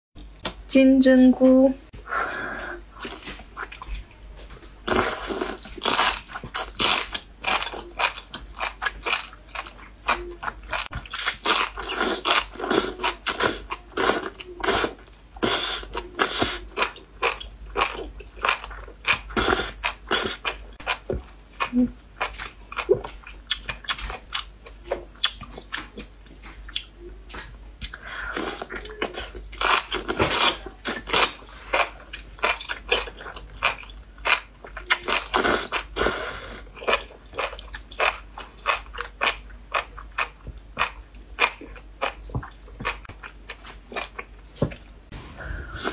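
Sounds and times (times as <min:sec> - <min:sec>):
person slurping: 0:45.4 - 0:45.9.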